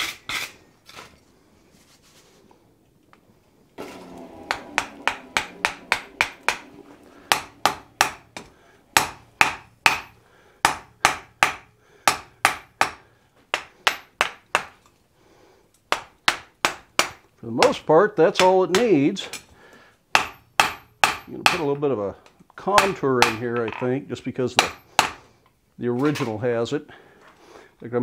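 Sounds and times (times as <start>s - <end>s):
hammer striking hot iron on anvil: 4.4s - 14.8s, 15.9s - 17.2s, 20.2s - 21.7s, 22.8s - 23.5s, 24.6s - 25.2s.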